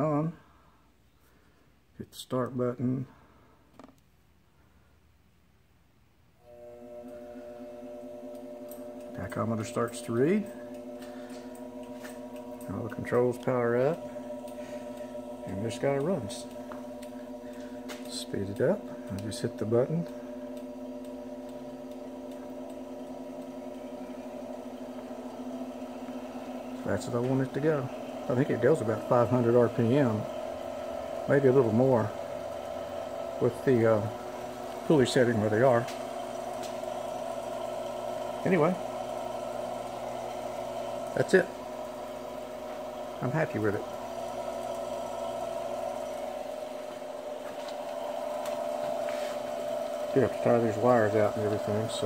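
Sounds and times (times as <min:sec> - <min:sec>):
electric motor humming: 0:06.4 - 0:52.0
metal lathe whine: 0:06.4 - 0:52.0.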